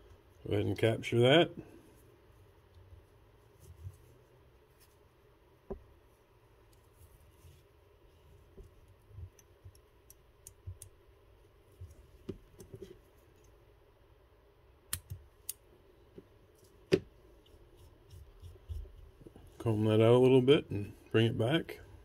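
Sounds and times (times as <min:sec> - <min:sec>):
small clicks and taps of tools: 0:08.6 - 0:11.0.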